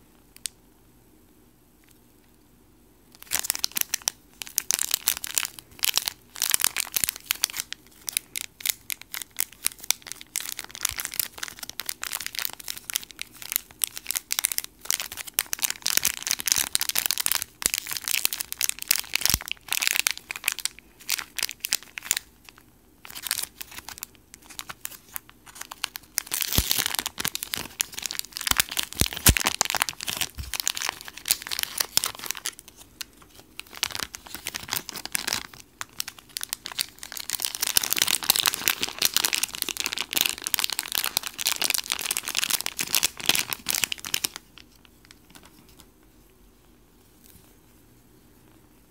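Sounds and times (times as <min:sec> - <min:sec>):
plastic bag crinkling: 0:03.1 - 0:45.9.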